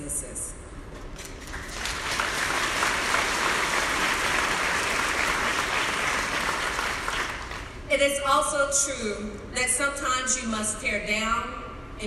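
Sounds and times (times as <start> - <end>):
audience applauding: 1.2 - 7.8.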